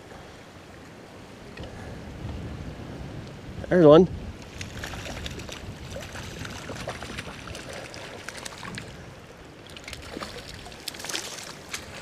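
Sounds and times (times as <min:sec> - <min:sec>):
running water: 0:04.4 - 0:12.0
fish splashing at water surface: 0:09.6 - 0:12.0.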